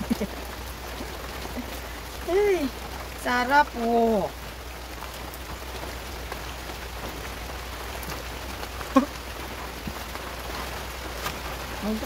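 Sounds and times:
rain on a metal roof: 0.0s - 12.0s
person vocal sound: 8.9s - 9.2s.

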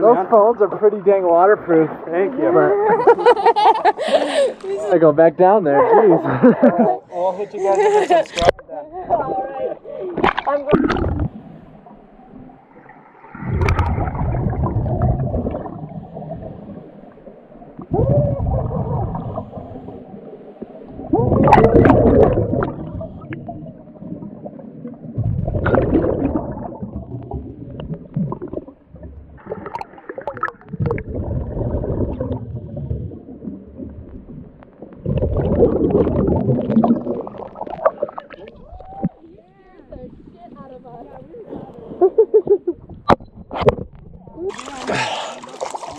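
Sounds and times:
gurgling bubbles: 10.2s - 11.5s, 12.8s - 39.2s, 42.8s - 45.9s.

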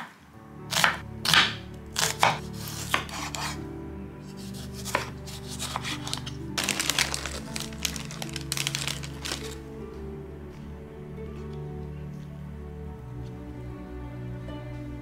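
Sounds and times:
knife cutting vegetables on board: 0.7s - 3.6s, 4.4s - 6.3s.

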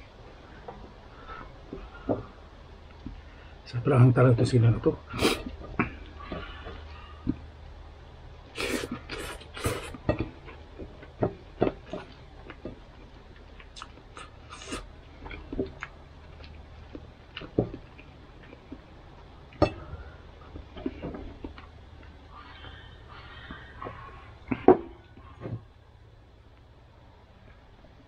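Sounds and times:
low hum: 0.0s - 28.0s
person chewing: 8.6s - 18.9s
mouth smacking: 13.6s - 18.8s.

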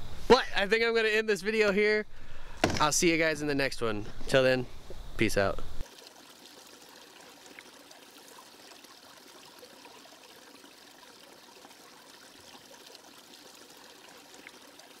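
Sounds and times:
stream trickling over stones: 5.8s - 15.0s.

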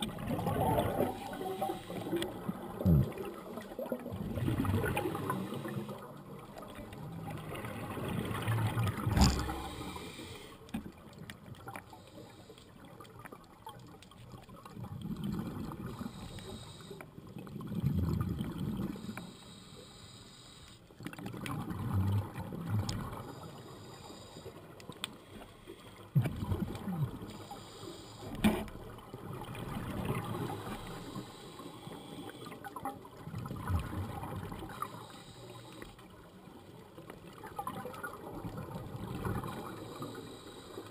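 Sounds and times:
underwater bubbles rumbling and gurgling: 0.0s - 19.2s, 21.0s - 40.9s
sharp clicks underwater: 7.7s - 14.8s, 22.3s - 27.4s.

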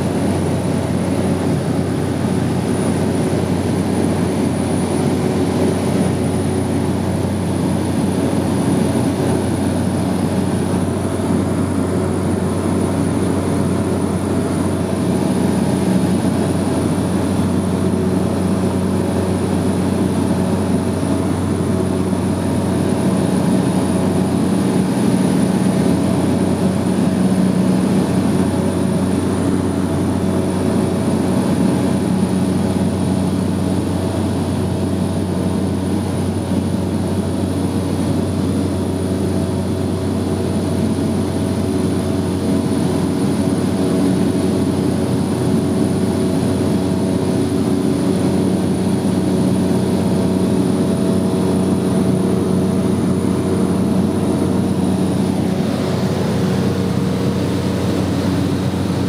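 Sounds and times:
propeller aircraft engine drone: 0.0s - 59.0s.

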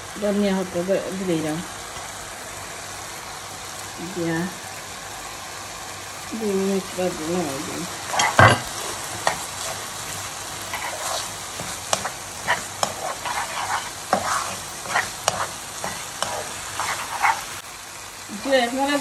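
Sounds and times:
sauce sizzling in a pan: 0.0s - 19.0s
spoon scraping and tapping pan: 8.1s - 9.8s, 10.7s - 17.4s.

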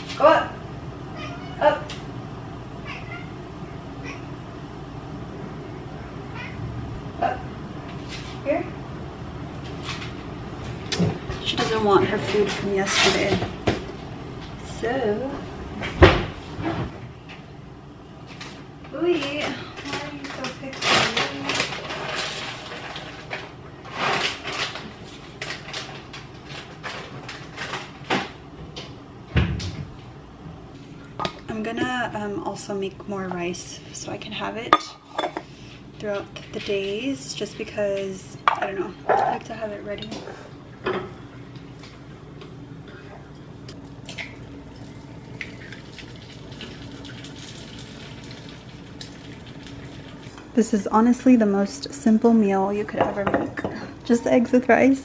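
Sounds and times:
plastic bag rustling: 19.4s - 28.1s
oil sizzling in frying pan: 45.6s - 50.5s.

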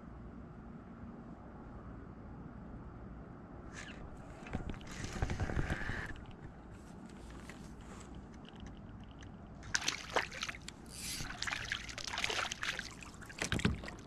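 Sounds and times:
fish splashing at surface: 9.7s - 14.0s.

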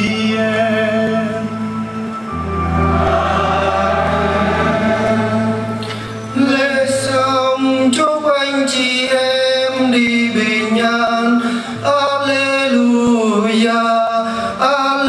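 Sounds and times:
choir singing long notes: 1.5s - 7.4s.

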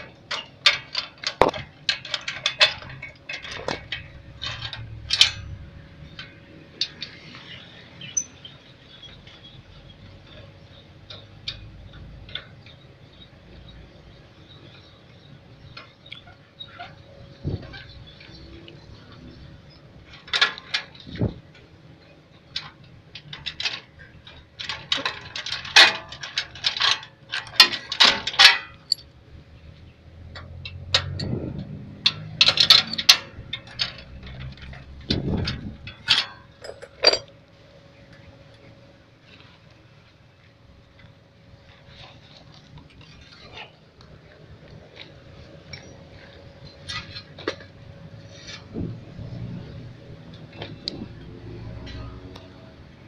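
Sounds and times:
metal frame parts clicking and clinking: 0.0s - 9.5s, 10.2s - 13.9s, 14.7s - 29.2s, 30.2s - 37.5s, 44.4s - 49.6s
metallic clicks and clinks: 8.0s - 8.5s, 22.5s - 29.1s, 30.3s - 37.3s.

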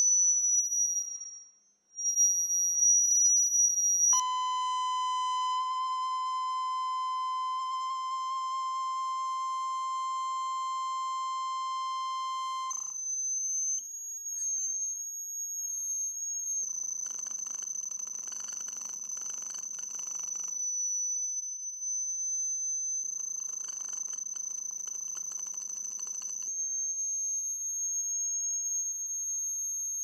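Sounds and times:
low buzzy electronic beep: 4.2s - 12.9s.

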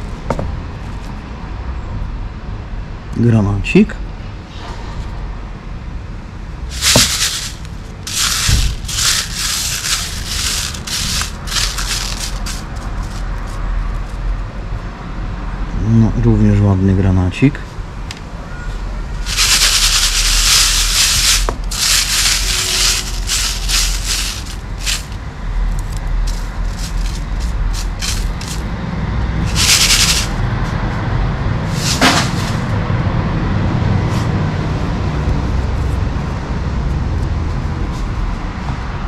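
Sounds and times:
gravel being sifted: 6.7s - 13.6s, 19.2s - 28.7s, 29.4s - 30.4s, 31.6s - 32.8s.

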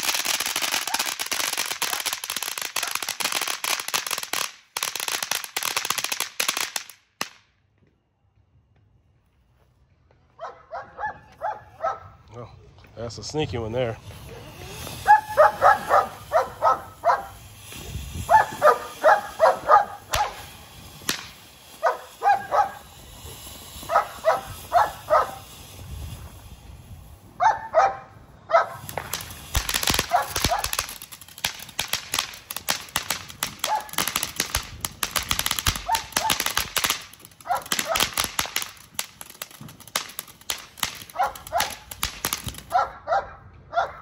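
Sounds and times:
firework fountain crackling: 0.0s - 7.4s, 12.8s - 43.1s
dog barking: 10.4s - 12.2s, 15.0s - 17.3s, 18.3s - 20.4s, 21.8s - 22.8s, 23.9s - 25.4s, 27.4s - 28.8s, 30.1s - 30.7s, 33.7s - 34.0s, 35.9s - 36.4s, 37.4s - 38.0s, 41.2s - 41.7s, 42.7s - 44.0s.

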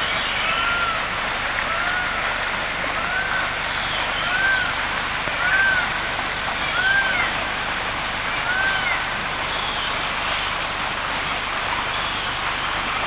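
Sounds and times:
bird calling: 3.0s - 7.5s, 8.3s - 10.6s.

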